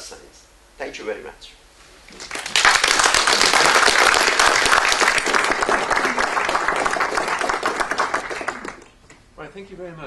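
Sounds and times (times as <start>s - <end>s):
audience applauding: 2.1s - 9.0s.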